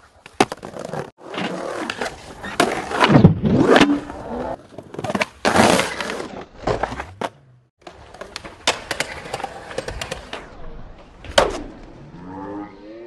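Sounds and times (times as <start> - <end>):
skateboard wheels rolling on concrete: 0.0 - 12.4.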